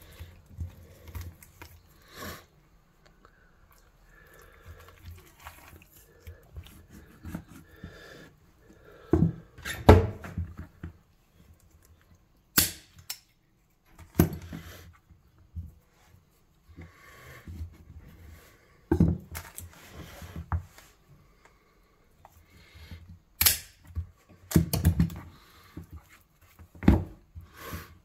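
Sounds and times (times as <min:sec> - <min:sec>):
wet handling of meat: 0:00.0 - 0:02.1, 0:02.9 - 0:08.0.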